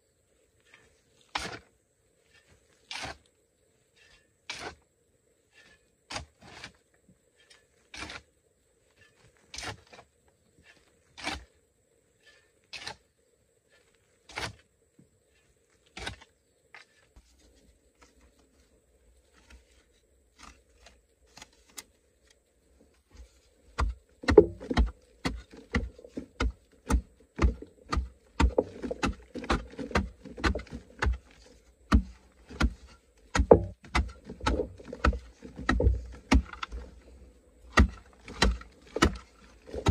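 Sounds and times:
dull thuds: 0:23.2 - 0:37.0, 0:37.6 - 0:39.9
blade chopping clay wall: 0:23.8 - 0:36.8, 0:37.7 - 0:39.9.

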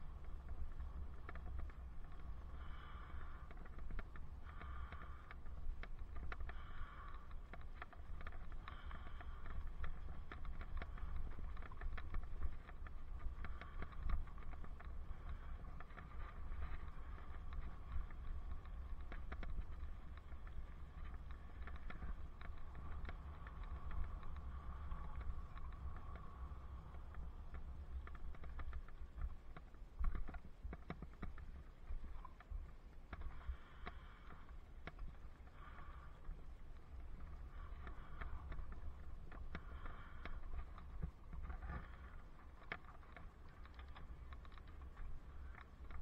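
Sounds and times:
bike rattling: 0:00.0 - 0:27.3
bicycle tyres crackling on grit: 0:00.0 - 0:46.0
wind rumble on microphone: 0:00.0 - 0:46.0.

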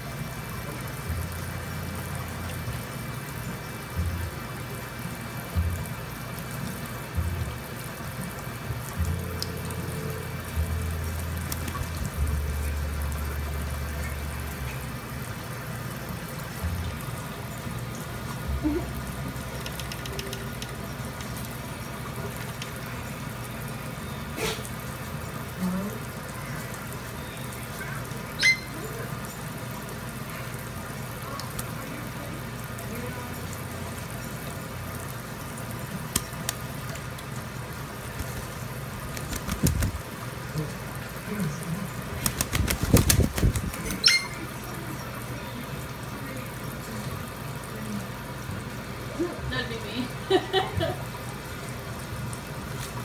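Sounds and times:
faucet water running into sink: 0:00.0 - 0:53.0
parrot flapping wet wings: 0:11.4 - 0:12.2, 0:18.7 - 0:21.6, 0:35.7 - 0:45.0, 0:52.6 - 0:53.0
parrot flapping wings: 0:11.5 - 0:12.0, 0:19.6 - 0:20.6, 0:38.1 - 0:40.1, 0:42.0 - 0:44.4
small water splashes: 0:33.6 - 0:47.6.

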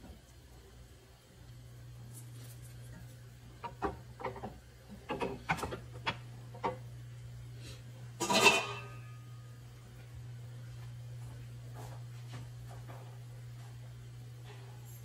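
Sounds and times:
steady low hum: 0:00.0 - 0:15.0
utensils scraping against a pan: 0:08.2 - 0:09.0.

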